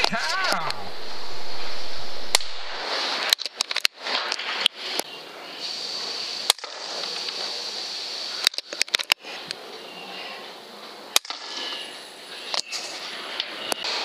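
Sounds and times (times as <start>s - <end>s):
air rifle shots popping: 2.2s - 2.8s.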